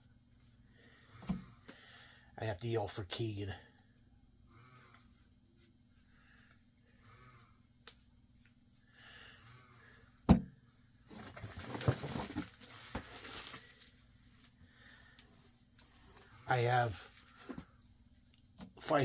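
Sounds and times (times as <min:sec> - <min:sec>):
rummaging through cardboard box: 0:11.1 - 0:14.4.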